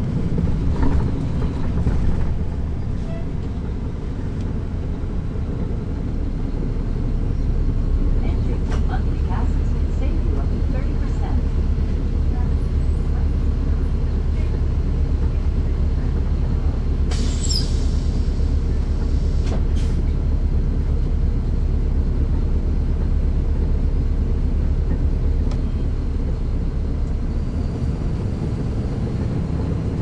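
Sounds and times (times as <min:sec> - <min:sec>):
bus diesel engine drone: 0:00.0 - 0:30.0
brief high squeal: 0:17.1 - 0:18.0.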